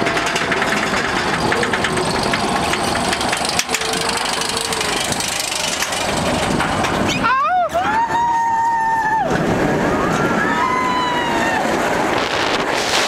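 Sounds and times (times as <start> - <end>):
lift chain clicking: 0.0 - 7.2
mechanical rattle and rumble: 0.0 - 7.8, 11.7 - 13.0.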